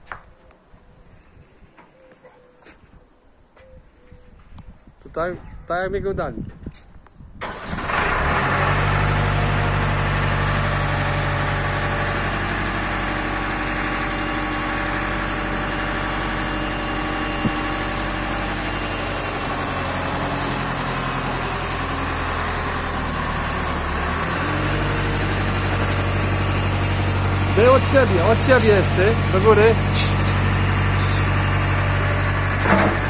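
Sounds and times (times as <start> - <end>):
diesel engine starting and running: 7.4 - 33.0.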